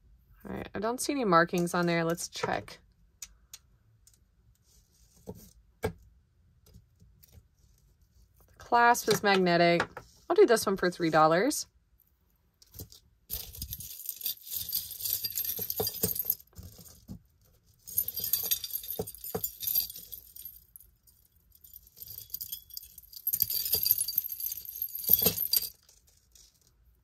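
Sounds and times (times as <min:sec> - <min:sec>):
metal chains jangling: 0:13.3 - 0:17.0, 0:17.8 - 0:26.5.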